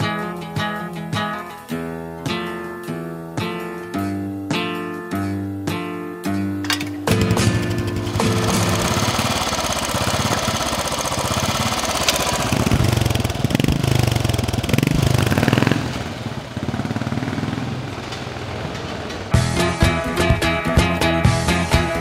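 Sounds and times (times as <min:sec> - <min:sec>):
motorcycle engine revving: 0:06.6 - 0:20.2.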